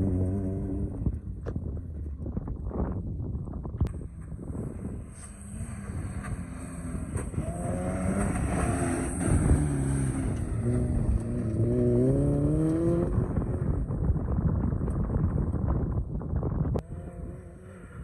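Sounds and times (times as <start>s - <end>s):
jeep engine revving: 5.2s - 13.1s.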